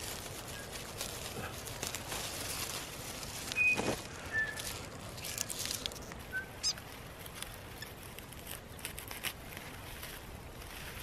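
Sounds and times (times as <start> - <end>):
leaves rustling and crackling: 0.0 - 11.0
bird chirps: 3.5 - 4.8, 6.3 - 6.8.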